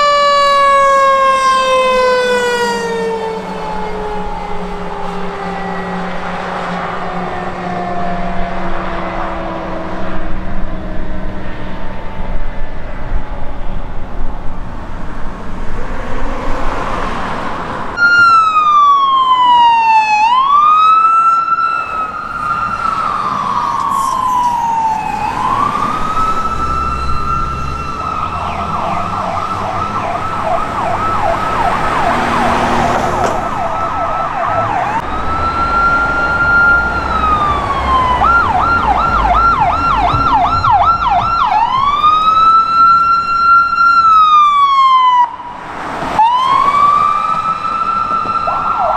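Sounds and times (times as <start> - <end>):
electronic siren wailing and yelping: 0.0 - 6.5, 18.0 - 45.6, 46.2 - 48.9
engine and road noise: 0.0 - 48.9.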